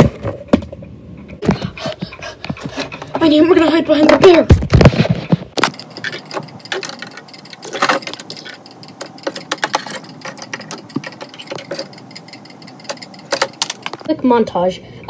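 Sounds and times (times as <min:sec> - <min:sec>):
plastic toys clicking and tapping: 0:05.6 - 0:14.1.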